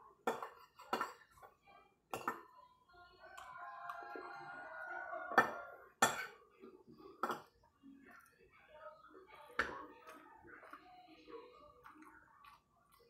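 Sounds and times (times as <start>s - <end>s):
cutlery clinking on a plate: 0.2s - 1.5s, 5.3s - 7.6s.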